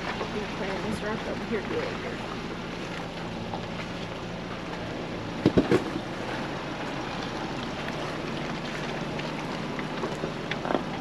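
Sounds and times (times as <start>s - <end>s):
tyres on gravel: 0.0s - 11.0s
vehicle engine running low: 0.0s - 11.0s
sharp knocks over rocks: 5.4s - 6.0s.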